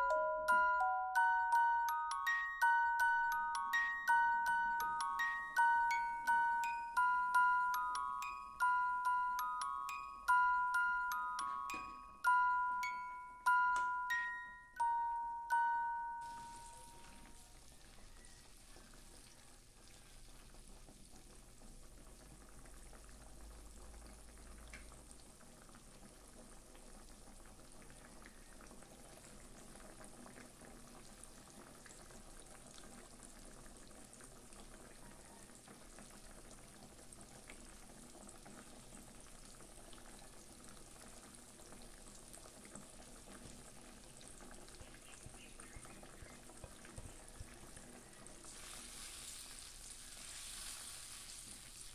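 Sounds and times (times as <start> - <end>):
liquid boiling in a pot: 16.2 - 51.9
small crackles: 41.2 - 51.9.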